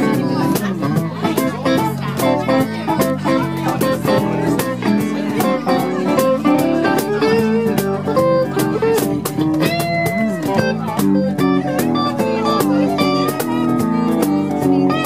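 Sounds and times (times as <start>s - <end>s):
electric guitar lead: 0.0s - 15.0s
steady drum beat: 0.0s - 15.0s.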